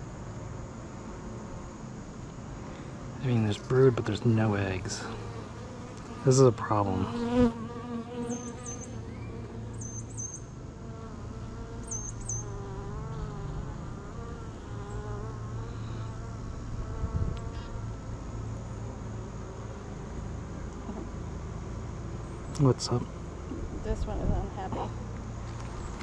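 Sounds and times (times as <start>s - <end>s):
bees buzzing: 1.0s - 21.3s.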